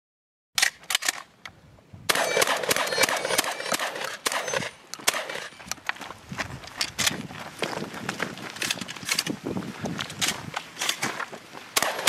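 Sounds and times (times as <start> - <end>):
shotgun shots with echo: 2.1 - 5.5, 11.8 - 12.0.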